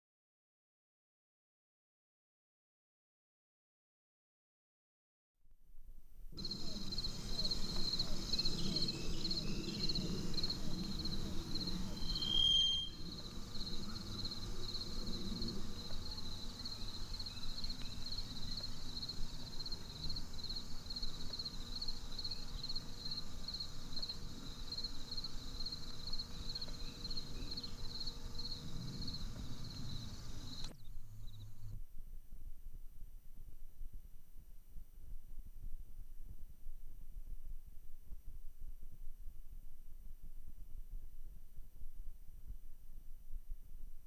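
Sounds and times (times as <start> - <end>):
low murmur: 6.3 - 21.4
insects chirping: 6.4 - 31.8.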